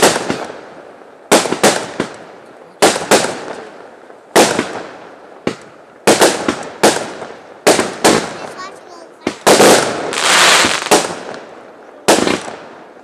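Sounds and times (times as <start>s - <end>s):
fireworks bangs: 0.0s - 13.0s
fireworks crackle: 0.0s - 13.0s.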